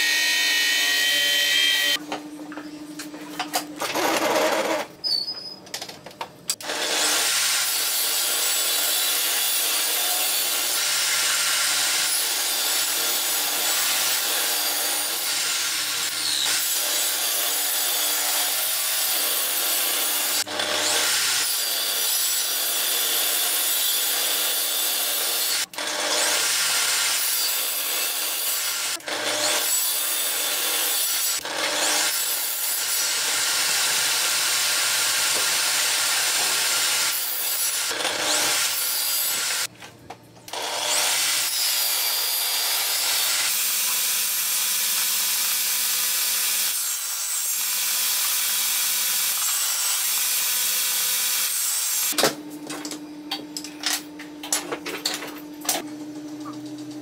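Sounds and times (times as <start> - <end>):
table saw ripping wooden boards: 6.6 - 39.7.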